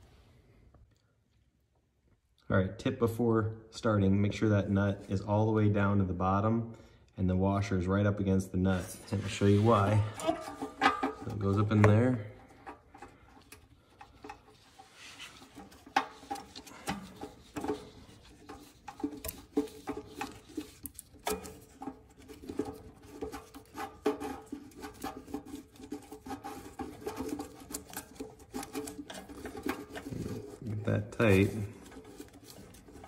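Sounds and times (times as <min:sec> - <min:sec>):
rubbing and squeaks: 0:08.6 - 0:33.0.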